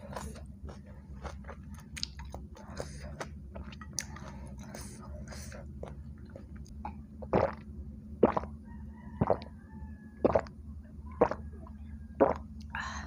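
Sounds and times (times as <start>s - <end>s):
person gulping a drink: 5.8s - 8.5s, 9.2s - 9.4s, 10.2s - 10.5s, 11.2s - 11.4s, 12.2s - 12.4s.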